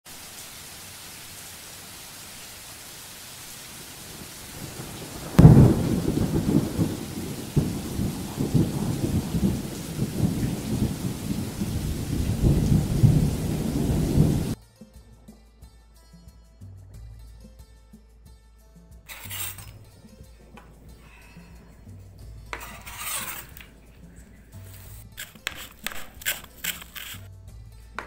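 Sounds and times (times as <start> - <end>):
steady rain: 0.0 - 14.6, 19.1 - 27.3
rolling thunder: 3.7 - 14.6
sharp thunderclap: 3.8 - 14.6.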